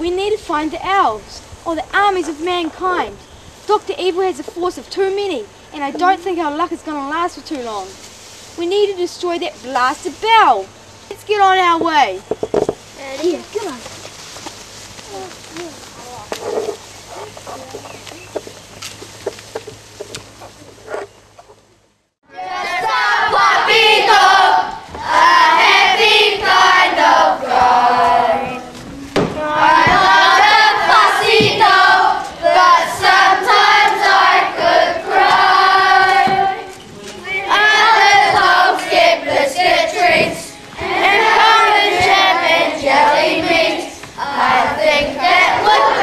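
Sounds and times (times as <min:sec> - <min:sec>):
children singing together: 0:22.3 - 0:46.0.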